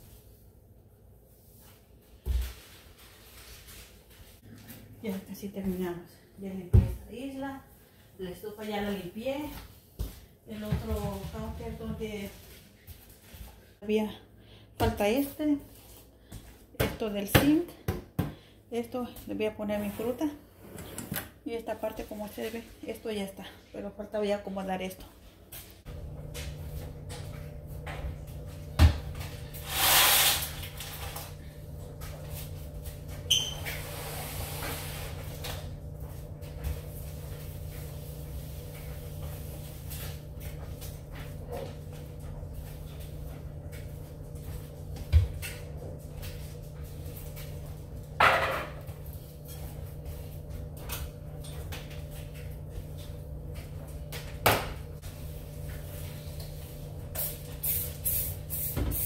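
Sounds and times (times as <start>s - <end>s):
steady low hum: 21.3s - 59.0s
spray bottle spritzes: 57.2s - 59.0s.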